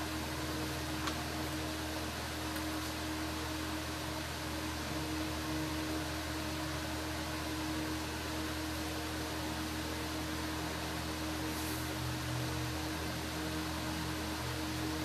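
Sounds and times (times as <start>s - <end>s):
constant low hum: 0.0s - 15.0s
steady hiss: 10.9s - 14.8s.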